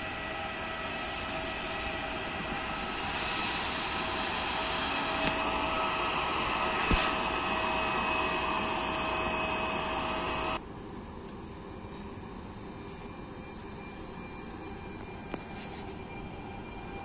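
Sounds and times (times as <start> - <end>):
locomotive blowers whining: 0.0 - 10.6.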